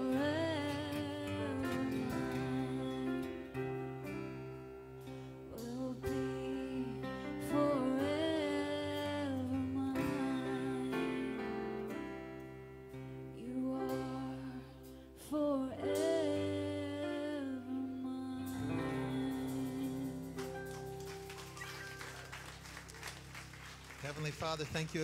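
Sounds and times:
woman singing: 0.0s - 4.2s, 5.5s - 12.1s, 13.3s - 20.8s
worship band playing slow song: 0.0s - 25.0s.

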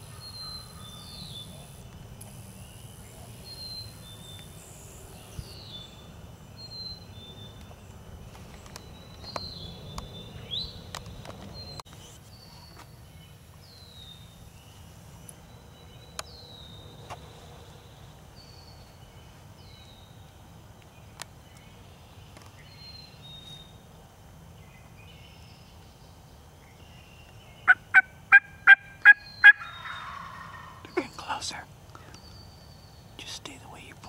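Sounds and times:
turkey calling: 27.6s - 31.6s.

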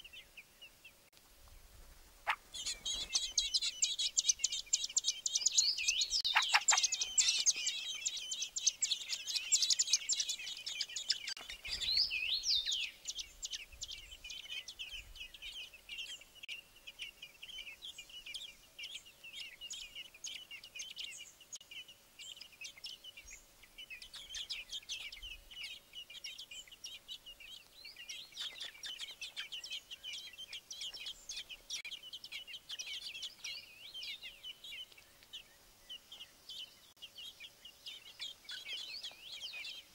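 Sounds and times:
nestlings begging cheeps: 2.2s - 16.0s.

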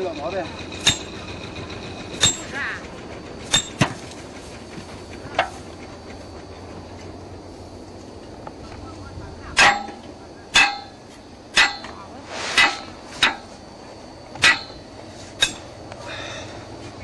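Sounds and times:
metal-on-metal strikes ringing: 0.8s - 1.2s, 2.2s - 2.5s, 3.5s - 3.9s, 9.6s - 13.6s, 14.4s - 15.7s.

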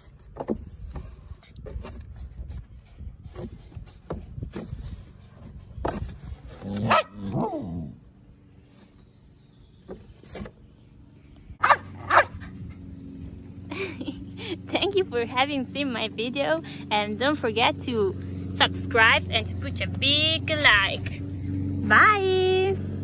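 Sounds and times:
scuffling on cardboard box: 0.0s - 6.9s
dog barking: 6.9s - 7.2s, 11.6s - 12.4s.

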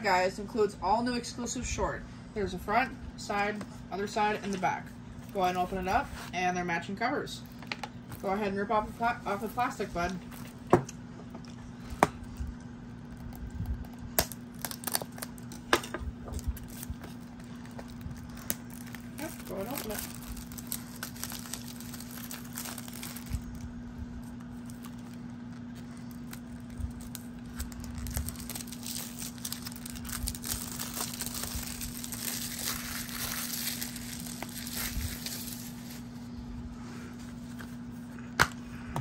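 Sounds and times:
plastic shrink-wrap tearing and crinkling: 7.4s - 10.7s, 13.1s - 36.2s.

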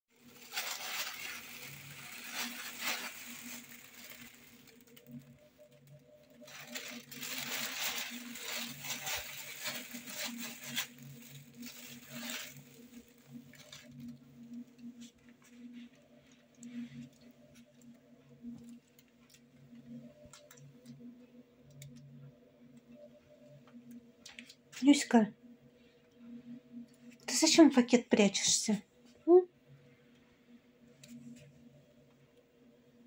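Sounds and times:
plastic bag rustling: 0.2s - 17.9s.

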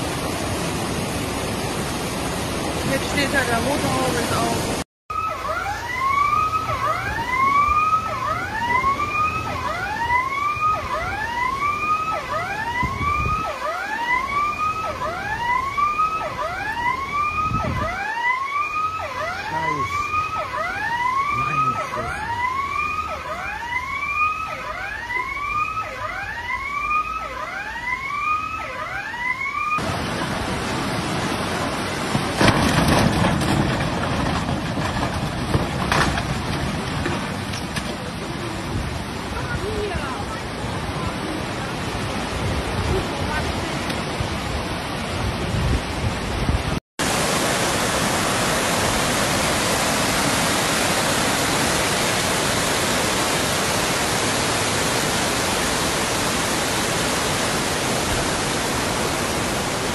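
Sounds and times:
rushing floodwater: 0.0s - 59.9s
siren wailing: 5.1s - 29.8s.

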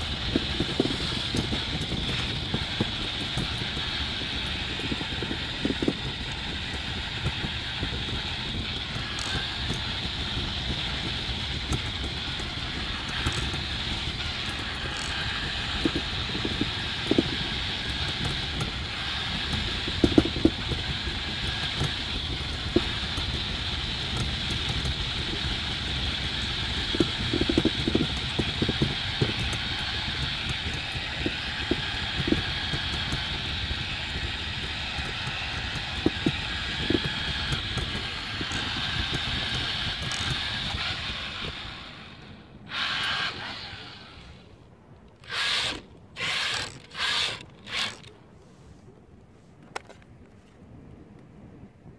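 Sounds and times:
cart rolling over paving tiles: 0.0s - 44.2s
high steady motor whine: 0.0s - 48.8s.

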